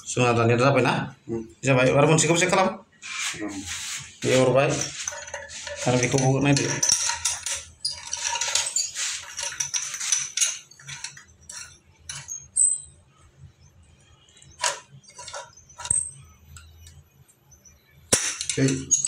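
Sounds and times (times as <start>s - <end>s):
metal scraping on tiles: 3.0s - 12.9s, 14.4s - 16.9s, 18.2s - 19.0s
metal clinks: 4.8s - 12.9s.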